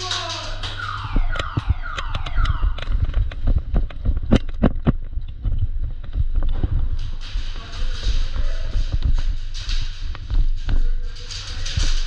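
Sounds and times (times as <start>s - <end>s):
electronic siren wailing: 0.0s - 3.4s
sharp clicks and knocks: 0.0s - 12.0s
steady low hum: 0.0s - 12.0s.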